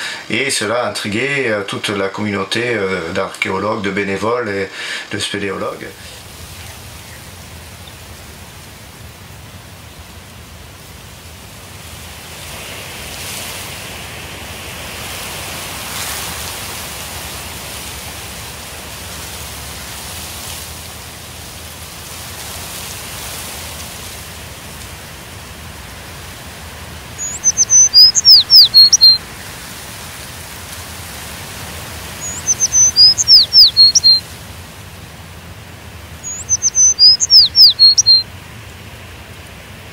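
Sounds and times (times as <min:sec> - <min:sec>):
wind rustling leafy trees: 0:00.0 - 0:39.9
songbird whistling: 0:27.2 - 0:29.2, 0:32.2 - 0:34.2, 0:36.2 - 0:38.3.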